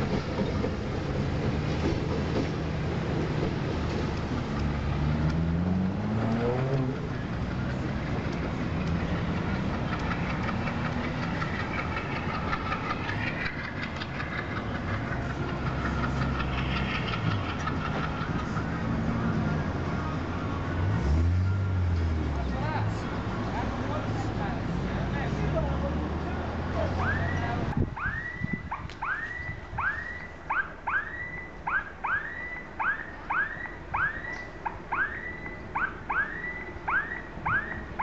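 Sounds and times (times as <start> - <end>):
diesel locomotive engine revving: 0.0 - 27.9.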